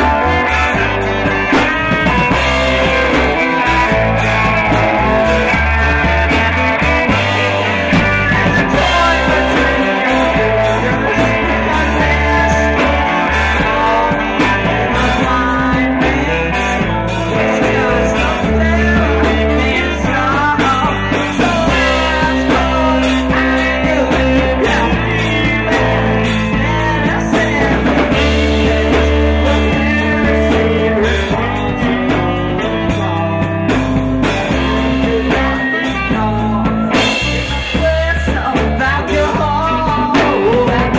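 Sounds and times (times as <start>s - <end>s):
bass line: 0.0s - 40.9s
drums: 0.0s - 40.9s
electric guitar: 0.0s - 40.9s
man singing: 0.0s - 40.9s
woman singing: 7.3s - 33.5s, 34.6s - 40.9s.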